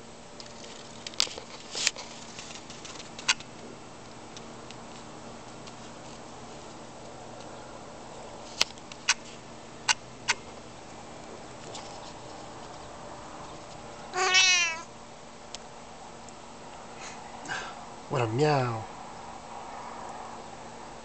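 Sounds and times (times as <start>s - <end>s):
cat meowing: 14.1s - 14.9s.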